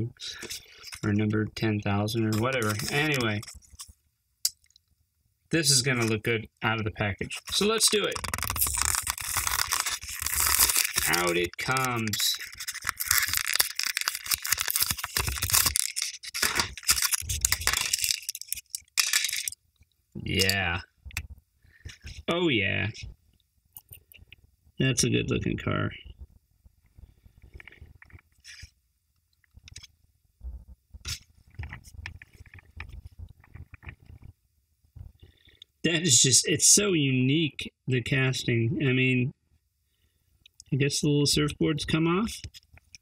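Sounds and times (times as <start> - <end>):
plastic packaging tearing: 2.3 - 3.9, 7.2 - 19.6.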